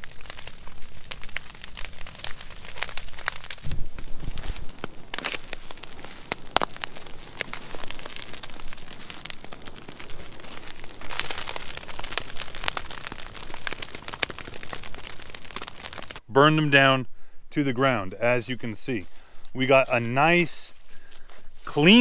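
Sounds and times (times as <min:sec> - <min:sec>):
dry weeds burning and crackling: 0:00.0 - 0:16.3, 0:17.2 - 0:22.0.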